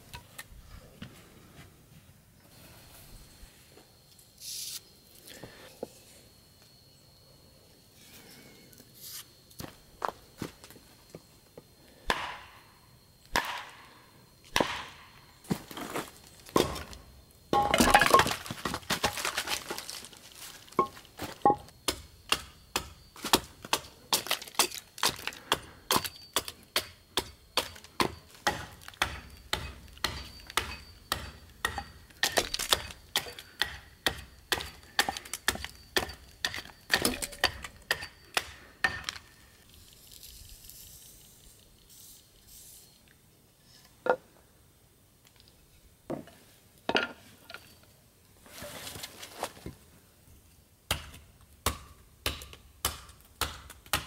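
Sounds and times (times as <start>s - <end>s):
hatchet chopping wood: 12.0s - 12.6s, 13.3s - 13.8s, 14.5s - 15.1s, 21.5s - 39.2s, 50.9s - 54.0s.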